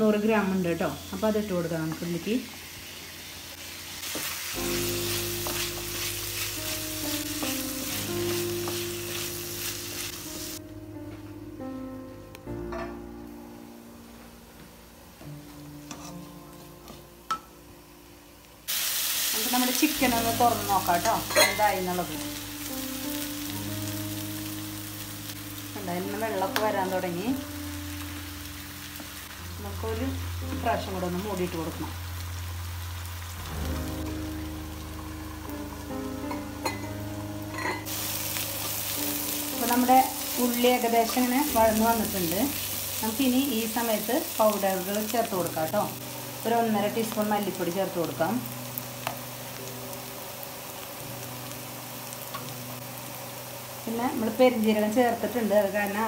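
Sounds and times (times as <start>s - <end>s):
onions sizzling in hot oil: 0.0s - 10.6s, 18.6s - 56.0s
soft background music: 0.0s - 56.0s
wooden spatula scraping: 15.9s - 16.4s.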